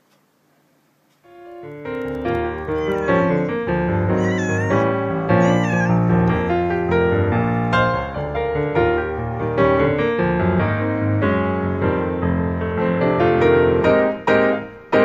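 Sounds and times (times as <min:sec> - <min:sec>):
piano background music: 0:01.3 - 0:15.0
cat meowing: 0:02.1 - 0:06.7.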